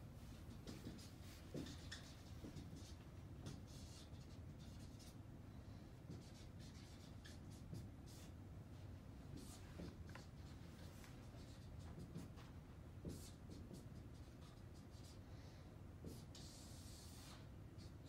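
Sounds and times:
marker scratching on whiteboard: 0.3s - 5.2s, 6.1s - 8.4s, 9.3s - 15.2s, 16.0s - 18.0s.

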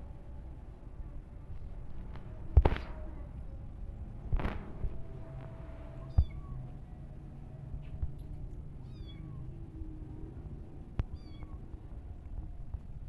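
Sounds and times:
low rumble: 0.0s - 13.0s
kitten mewing: 6.0s - 6.7s.

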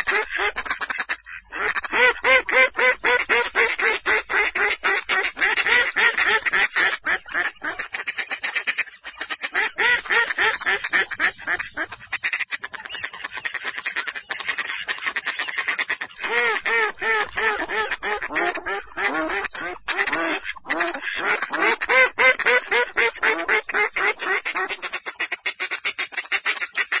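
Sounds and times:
ducks quacking: 0.0s - 27.0s.

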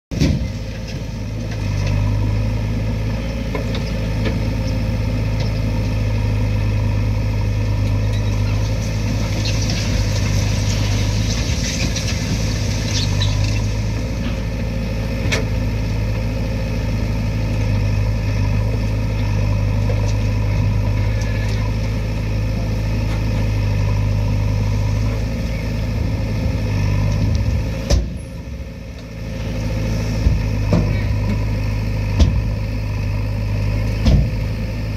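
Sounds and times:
diesel engine running: 0.0s - 34.9s.

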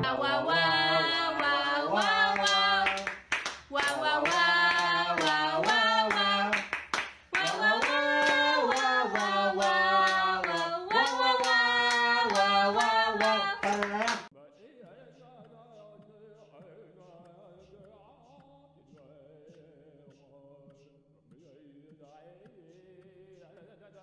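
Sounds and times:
people singing: 0.0s - 14.3s
hand claps: 1.1s - 14.3s.

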